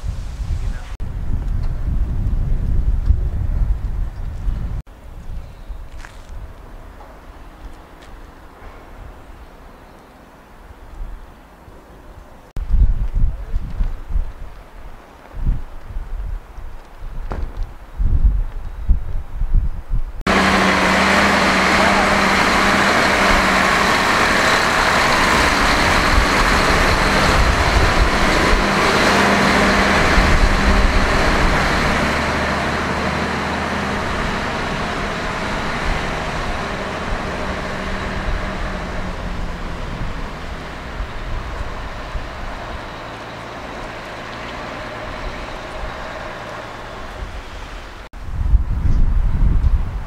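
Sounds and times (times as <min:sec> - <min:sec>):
heavy vehicle engine rumbling: 0:20.2 - 0:48.2.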